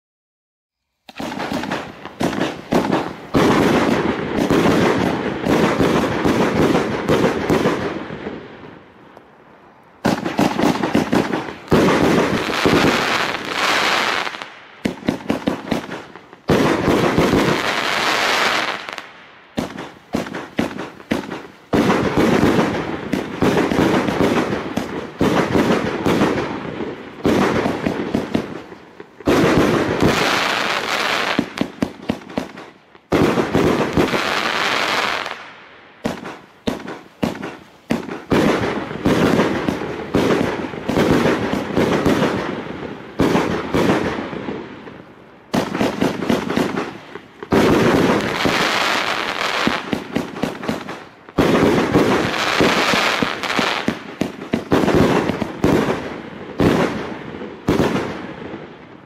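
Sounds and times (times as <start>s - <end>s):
crackling hiss of fireworks: 0.8s - 59.0s
fireworks launch thumps and bursts: 1.0s - 7.9s, 19.6s - 26.5s, 36.0s - 42.5s.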